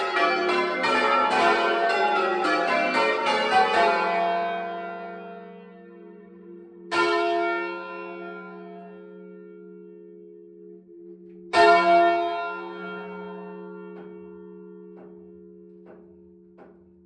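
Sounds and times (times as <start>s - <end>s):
church bells change ringing: 0.0s - 16.8s.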